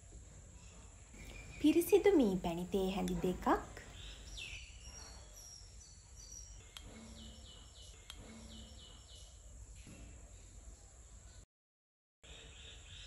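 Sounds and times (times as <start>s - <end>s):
small bird chirping: 0.6s - 11.4s.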